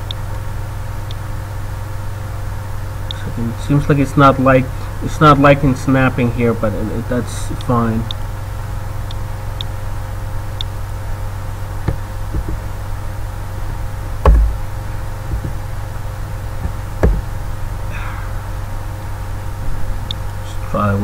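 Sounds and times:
low electrical hum: 0:00.0 - 0:21.0
dull knocks on desk: 0:14.2 - 0:14.6, 0:16.6 - 0:17.3.

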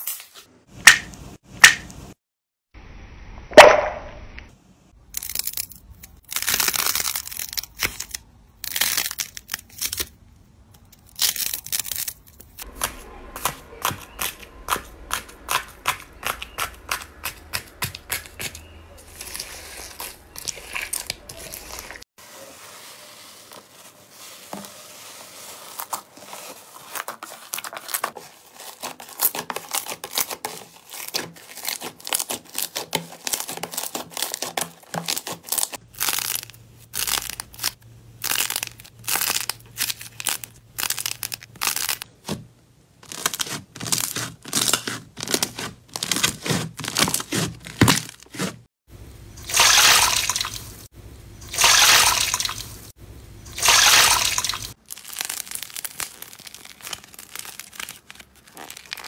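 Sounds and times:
squelching wet block squeezes: 0:12.8 - 0:22.0, 0:49.4 - 0:50.7, 0:51.4 - 0:52.7, 0:53.5 - 0:54.8.

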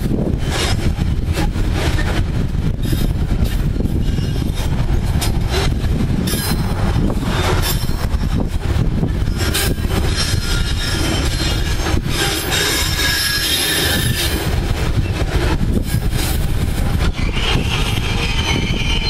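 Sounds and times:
freight train rolling past: 0:00.0 - 0:19.0
high-pitched wheel squeal: 0:03.8 - 0:04.7, 0:09.2 - 0:14.4, 0:17.0 - 0:19.0.

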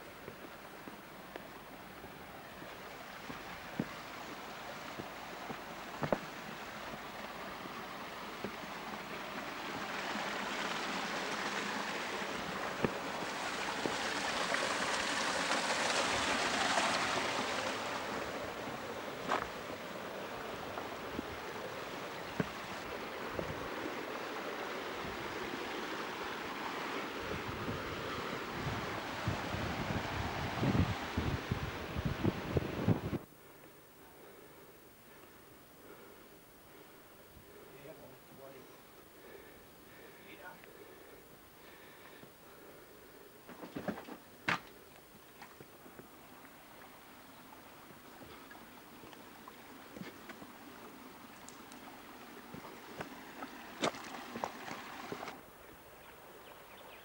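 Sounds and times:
creek water running over rocks: 0:00.0 - 0:33.1, 0:43.4 - 0:57.0.

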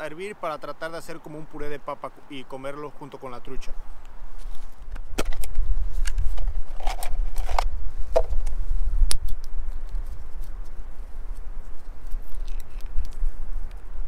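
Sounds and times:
wind rumbling on microphone: 0:03.4 - 0:14.0
gear clicking on stones: 0:12.2 - 0:13.2.

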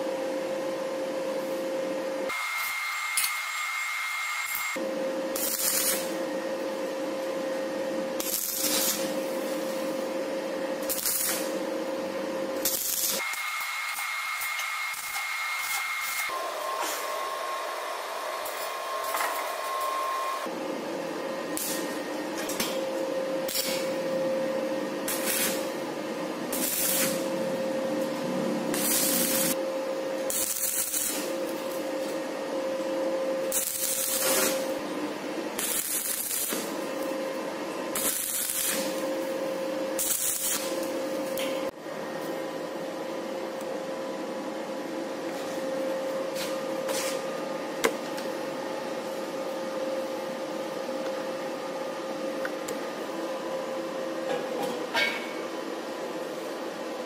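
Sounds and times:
steady whine: 0:00.0 - 0:55.4
welding arc crackling and sizzling: 0:02.3 - 0:07.2, 0:08.1 - 0:17.0, 0:18.4 - 0:20.2, 0:21.5 - 0:24.3, 0:25.0 - 0:29.6, 0:30.2 - 0:32.3, 0:33.4 - 0:34.9, 0:35.5 - 0:41.8.

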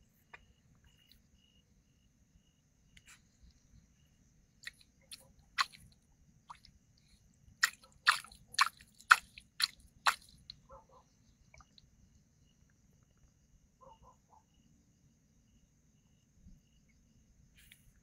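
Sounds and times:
wet clicks at water surface: 0:04.6 - 0:05.8, 0:07.6 - 0:10.6.

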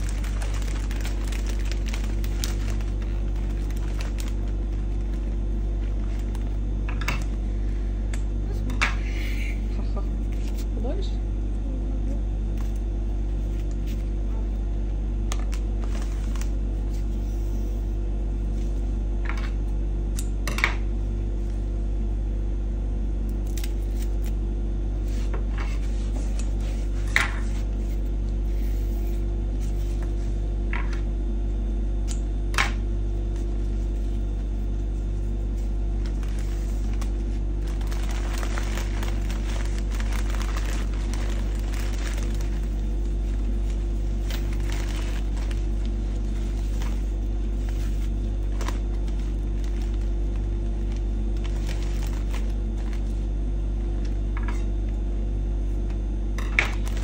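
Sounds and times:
paper and ribbon rustling: 0:00.0 - 0:06.6, 0:35.6 - 0:53.2
steady low hum: 0:00.0 - 0:57.0.

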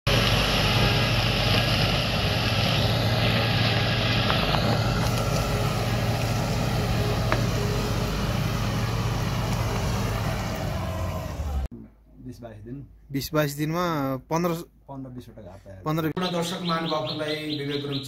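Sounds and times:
vehicle engine droning: 0:00.1 - 0:11.7.

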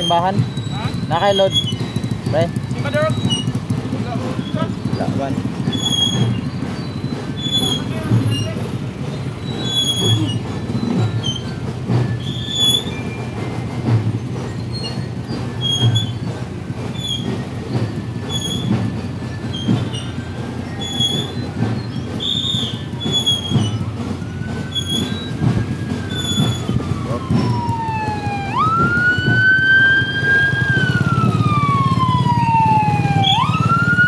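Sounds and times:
short high-pitched squeals: 0:00.0 - 0:03.6, 0:05.6 - 0:08.6, 0:09.4 - 0:13.4, 0:16.9 - 0:25.4
motorcycle engines idling: 0:00.0 - 0:34.0.

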